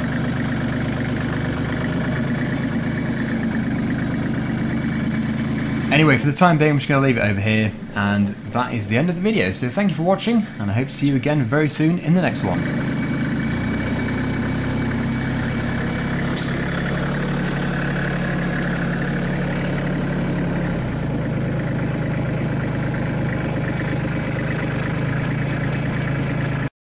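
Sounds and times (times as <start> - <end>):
tractor diesel engine running: 0.0 - 26.7.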